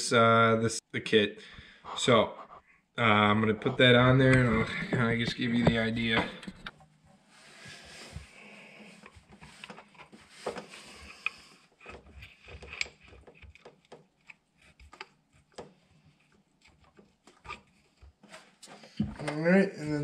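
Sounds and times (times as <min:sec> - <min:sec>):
metal clicks taps and scraping: 0:09.0 - 0:18.2.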